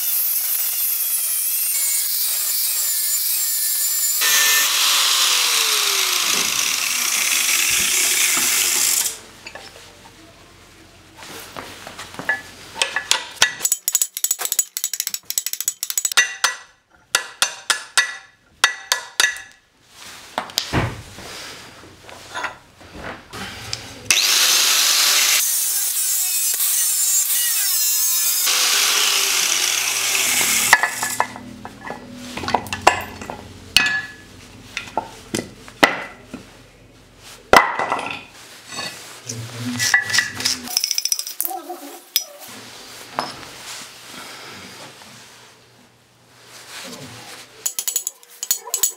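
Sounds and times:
angle grinder grinding metal: 0.0s - 9.2s, 24.1s - 35.5s, 39.2s - 40.8s.

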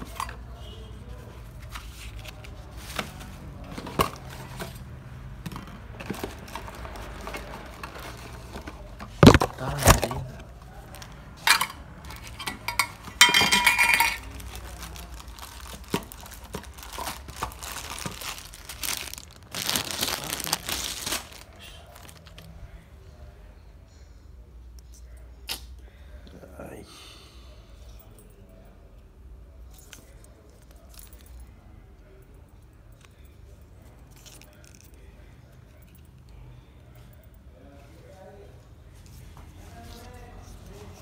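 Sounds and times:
bubble wrap crinkling: 14.1s - 22.5s.

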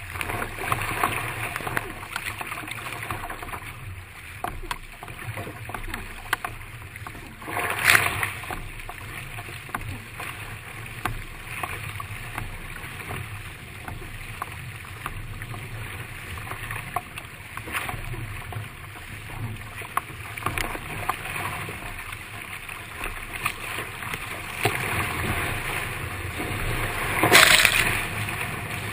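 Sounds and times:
paddle strokes: 0.0s - 28.9s
water rushing and splashing: 0.0s - 28.9s
loud splash: 24.6s - 28.9s.

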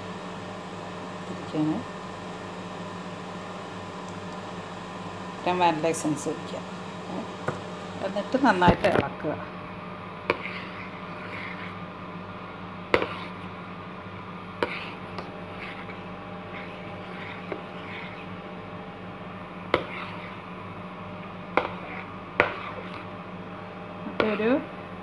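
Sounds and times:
steady low hum: 0.0s - 25.0s
spoon stirring thick mixture: 7.2s - 24.4s.

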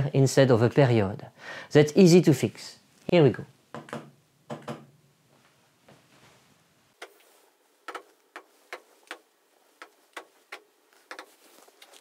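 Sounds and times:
stylus tapping on touchscreen: 7.8s - 9.2s, 9.8s - 11.4s.

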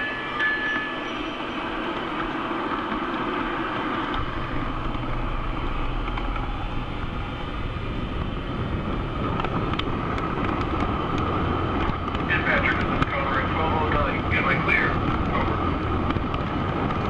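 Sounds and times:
model train engine rumble: 0.0s - 17.0s
model train rolling on track: 0.0s - 17.0s.

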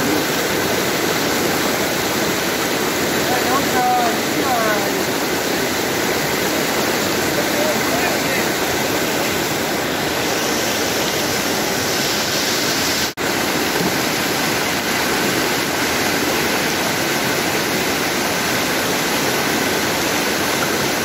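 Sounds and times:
river rushing over rocks: 0.0s - 21.0s.

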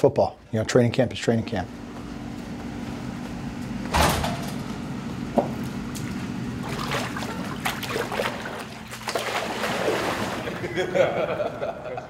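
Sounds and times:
steady low hum: 0.0s - 12.0s
water splashing in pool: 6.0s - 10.8s.

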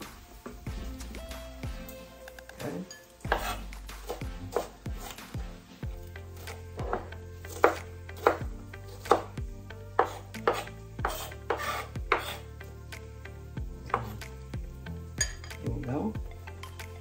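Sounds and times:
knife chopping on wooden board: 3.3s - 5.2s, 6.4s - 9.4s, 10.0s - 12.4s, 13.9s - 14.2s.

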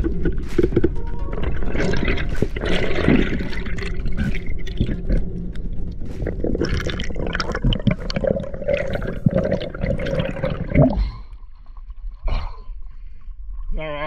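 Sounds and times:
water gushing: 0.0s - 5.5s, 6.2s - 11.0s
underwater bubbling and gurgling: 0.0s - 12.2s.

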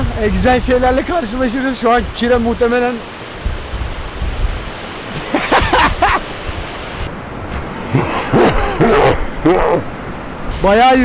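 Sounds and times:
rushing mountain stream: 0.0s - 11.0s
voices: 7.9s - 11.0s.

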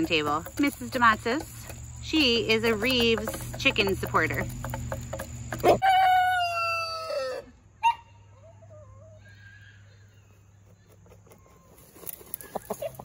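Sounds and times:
rooster crowing: 5.6s - 9.2s.

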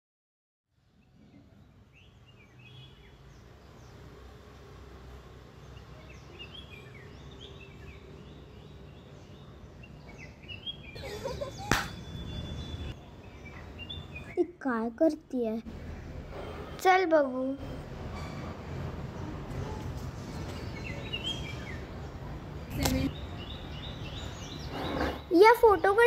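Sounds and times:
small birds chirping: 0.9s - 18.3s, 19.1s - 26.0s
sharp hand clap: 11.6s - 12.0s.

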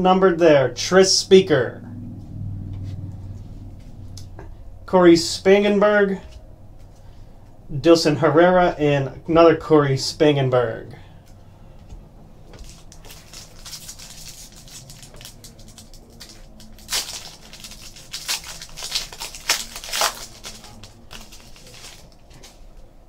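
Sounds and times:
wrapper crinkling and tearing: 12.6s - 22.8s.

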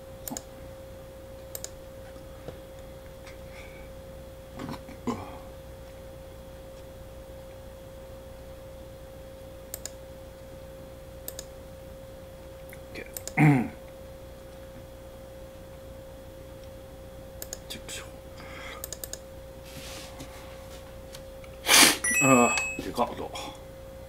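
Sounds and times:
computer keyboard clicks: 0.2s - 0.5s, 1.5s - 1.8s, 9.7s - 10.0s, 11.2s - 11.5s, 17.4s - 17.6s, 18.8s - 19.2s
high-pitched hum: 22.0s - 24.0s.

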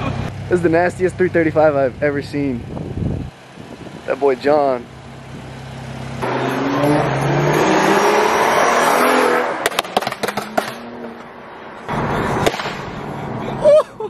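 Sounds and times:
car engine accelerating: 0.0s - 13.8s
exhaust pops and crackles: 9.6s - 11.0s, 12.4s - 13.1s.

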